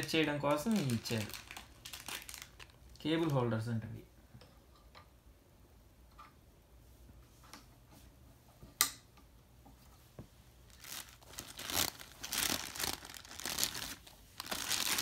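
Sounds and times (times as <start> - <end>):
plastic bags crinkling: 0.0 - 3.5, 10.7 - 15.0.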